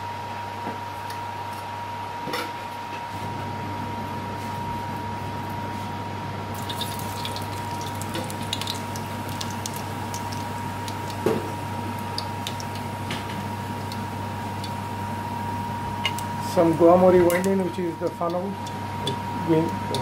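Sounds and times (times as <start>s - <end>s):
steady hum: 0.0s - 20.0s
seeds crackling in hot oil: 6.5s - 20.0s.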